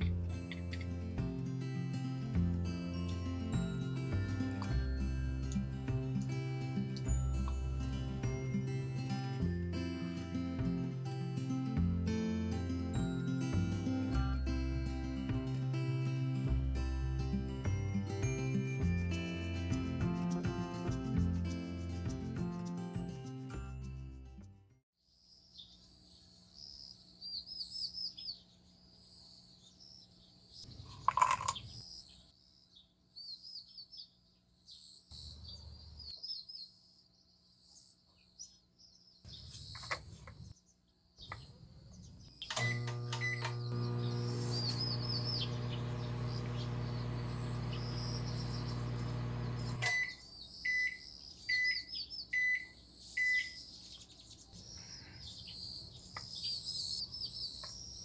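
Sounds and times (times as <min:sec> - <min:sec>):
birds chirping: 0:26.5 - 0:58.0
microwave oven humming: 0:42.5 - 0:50.2
microwave beeps: 0:42.5 - 0:53.6.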